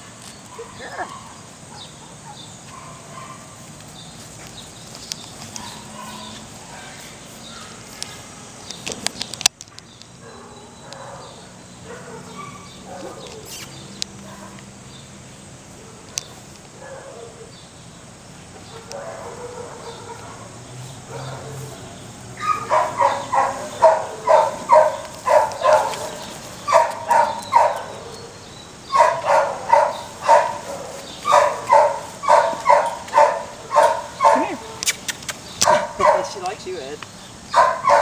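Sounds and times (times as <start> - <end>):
faint outdoor background: 0.0 - 38.0
dog barking: 0.5 - 3.6, 5.6 - 7.8, 10.2 - 13.6, 16.8 - 17.5, 18.6 - 20.5, 21.1 - 21.8, 22.4 - 28.3, 28.9 - 34.8, 35.6 - 36.5, 37.5 - 38.0.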